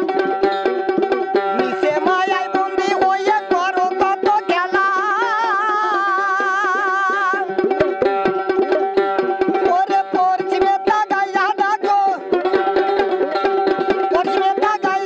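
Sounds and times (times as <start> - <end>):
hand drum beat: 0.0 - 15.0
plucked lute: 0.0 - 15.0
man singing: 1.5 - 7.6, 9.6 - 12.4, 14.0 - 15.0.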